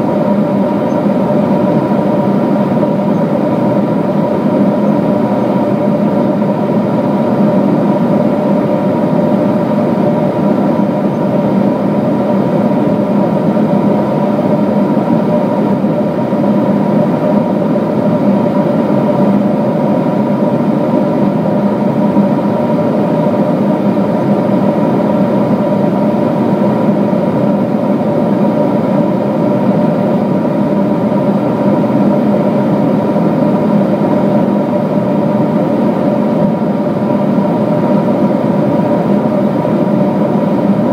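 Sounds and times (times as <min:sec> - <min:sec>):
airliner cabin engine and airflow noise: 0:00.0 - 0:40.9
steady hums: 0:00.0 - 0:40.9.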